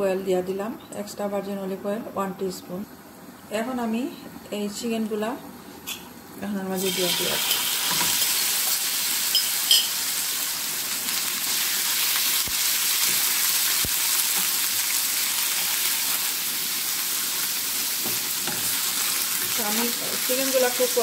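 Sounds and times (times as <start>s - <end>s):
chicken sizzling in a frying pan: 6.8s - 21.0s.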